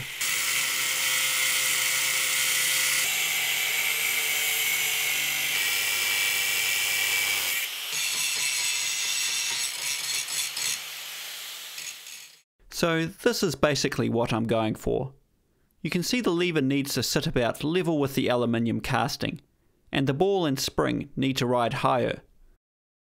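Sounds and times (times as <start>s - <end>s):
angle grinder cutting metal: 0.0s - 12.5s.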